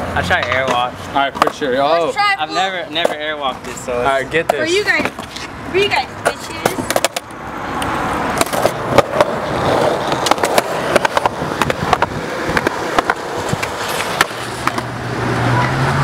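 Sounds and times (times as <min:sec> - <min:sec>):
skateboard wheels rolling on concrete: 0:00.0 - 0:16.0
skateboard clacks: 0:00.3 - 0:01.8, 0:06.2 - 0:14.9.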